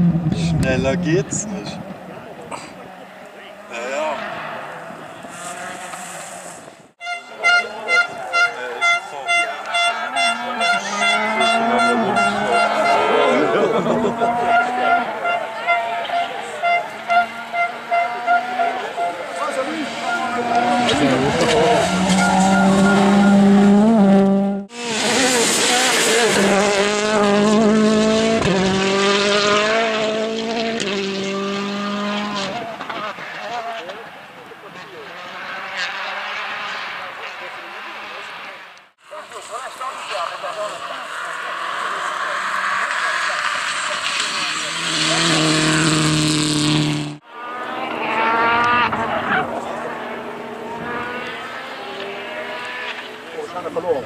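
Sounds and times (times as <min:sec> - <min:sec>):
rally car engine at high pitch: 0:00.0 - 0:54.0
tyre noise hiss: 0:05.3 - 0:06.8.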